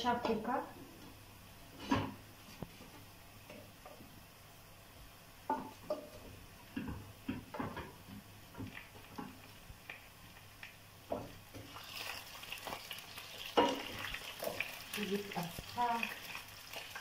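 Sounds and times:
oil sizzling: 0:03.1 - 0:17.0
food dropping into pan: 0:11.1 - 0:14.8
spatula stirring: 0:11.5 - 0:17.0.

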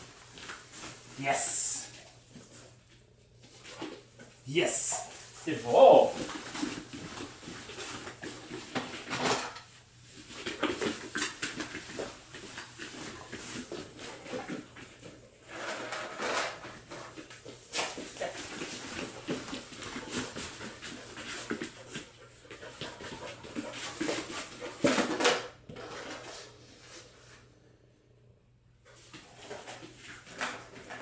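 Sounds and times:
tubs clattering on foam mat: 0:06.0 - 0:26.5.

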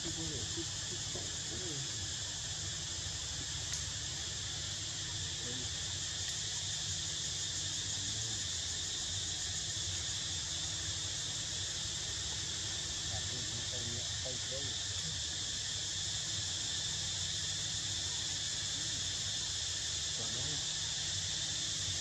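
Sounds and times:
insects chorus: 0:00.0 - 0:22.0.

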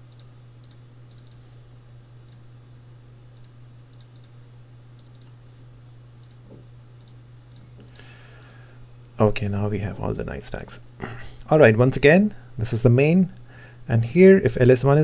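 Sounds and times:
computer mouse clicking: 0:00.1 - 0:01.4, 0:03.4 - 0:04.3, 0:05.0 - 0:05.3, 0:06.2 - 0:06.4.

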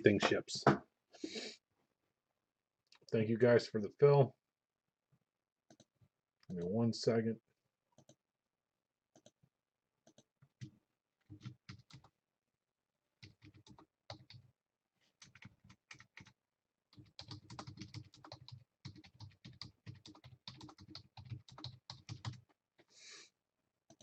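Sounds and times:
typing on computer keyboard: 0:11.3 - 0:12.1, 0:13.2 - 0:14.4, 0:15.2 - 0:22.5.

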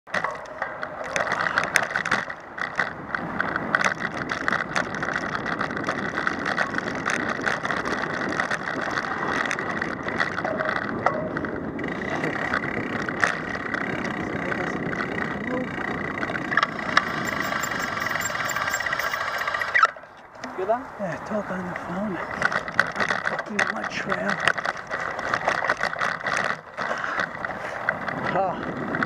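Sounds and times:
bicycle tyres on dirt trail: 0:00.1 - 0:29.0
bike clicks and rattles: 0:00.1 - 0:29.0.

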